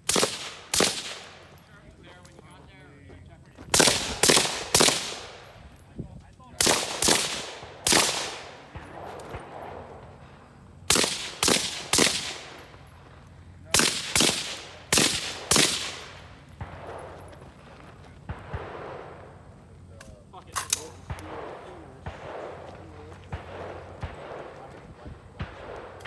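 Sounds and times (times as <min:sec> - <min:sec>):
rifle shots echoing: 0:00.0 - 0:01.9, 0:03.7 - 0:05.8, 0:06.5 - 0:26.0.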